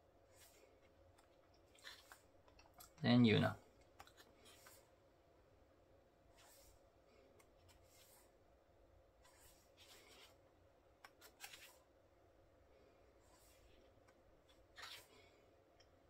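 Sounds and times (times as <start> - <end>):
book pages turning: 0.3 - 2.7, 4.0 - 4.8, 11.0 - 11.9, 13.3 - 15.2.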